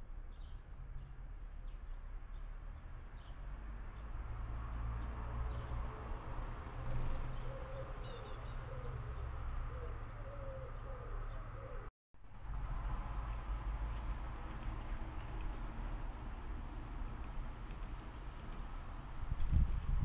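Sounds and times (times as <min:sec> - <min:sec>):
low repeated bird call: 0:07.3 - 0:11.9.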